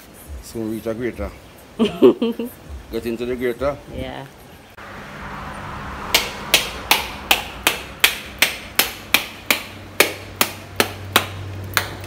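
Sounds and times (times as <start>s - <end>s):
machete knocking coconut shell: 6.9s - 12.0s.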